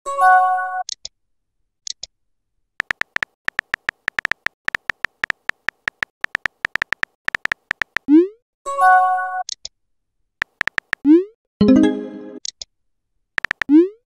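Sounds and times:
phone keyboard typing clicks: 2.8s - 8.1s, 10.4s - 11.1s, 13.4s - 13.7s.

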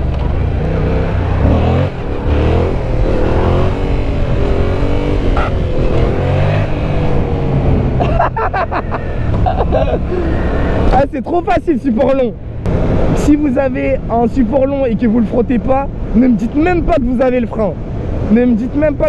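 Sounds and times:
motorcycle engine revving: 0.0s - 8.2s
wind rushing over microphone: 0.0s - 19.0s.

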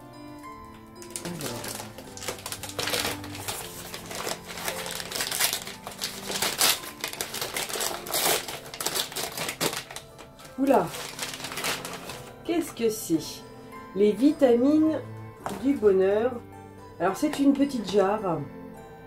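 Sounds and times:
soft background music: 0.0s - 19.0s
paper crackling and crinkling: 0.4s - 12.8s.

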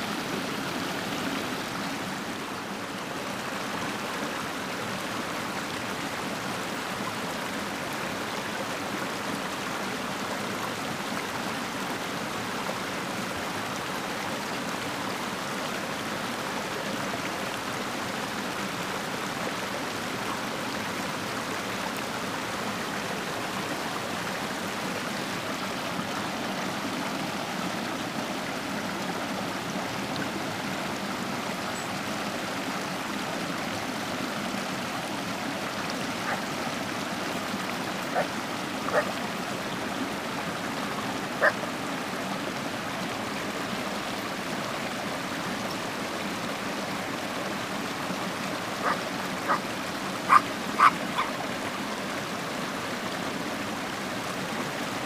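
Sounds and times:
creek water rushing over rocks: 0.0s - 55.0s.

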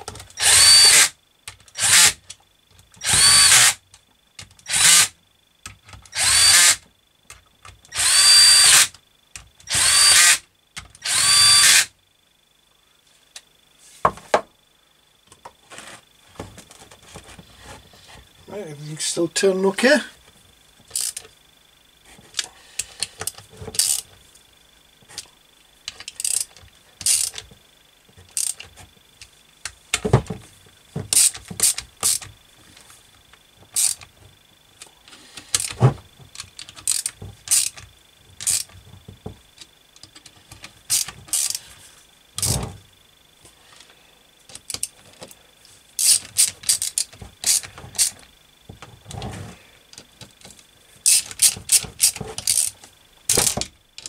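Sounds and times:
socket ratchet clicking: 20.9s - 21.3s, 23.0s - 24.0s, 25.9s - 27.4s, 28.3s - 28.7s, 31.1s - 32.3s, 33.8s - 34.1s, 36.4s - 37.8s, 38.4s - 38.7s, 46.0s - 48.2s, 51.1s - 53.7s.

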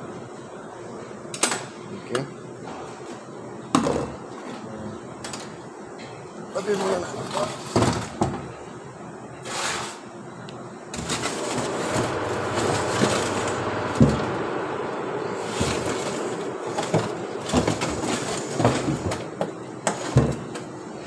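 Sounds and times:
metal parts scraping on workbench: 9.4s - 10.0s, 15.4s - 20.7s.

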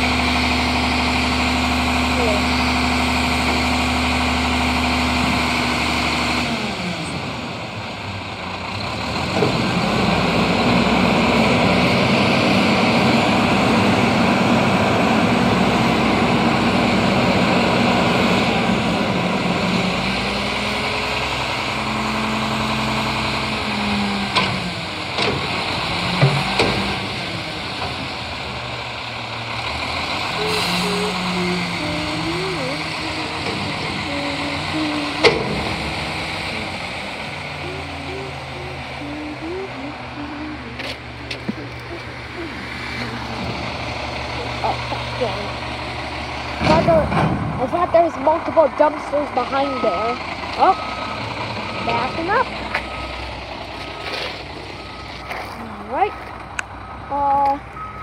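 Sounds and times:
garbage truck diesel engine revving: 0.0s - 58.0s.

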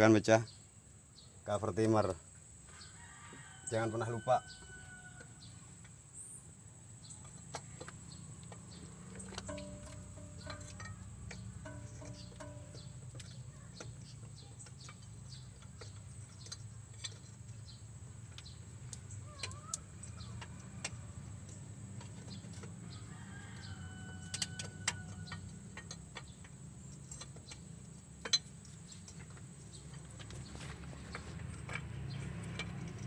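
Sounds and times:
metallic clicks of hand tools: 7.0s - 22.8s, 31.1s - 33.0s
chickens clucking: 18.4s - 28.0s.

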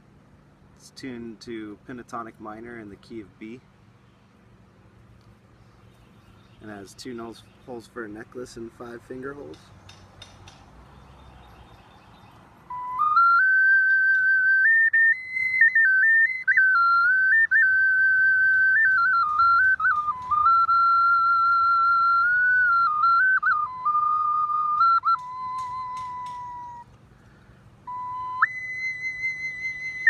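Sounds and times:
ocarina melody: 12.6s - 27.0s, 27.7s - 30.0s.

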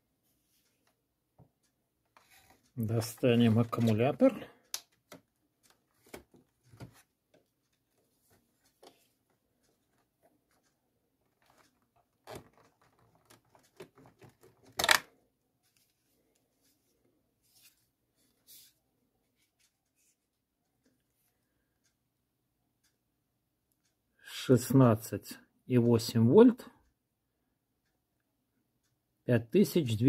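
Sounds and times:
plastic clicks and knocks: 11.3s - 15.2s.

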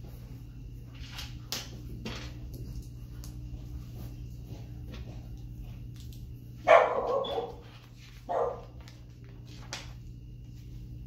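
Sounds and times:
dog barking: 6.6s - 7.6s, 8.3s - 8.7s.

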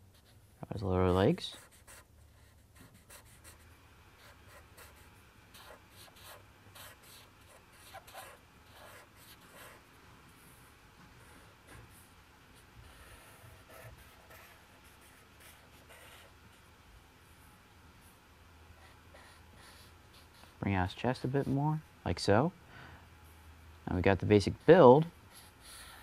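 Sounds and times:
marker pen scratching on paper: 1.5s - 3.6s, 4.2s - 9.8s, 12.6s - 16.6s.

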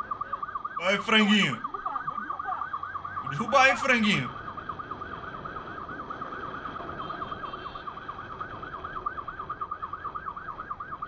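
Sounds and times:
police siren yelping: 0.0s - 4.5s.

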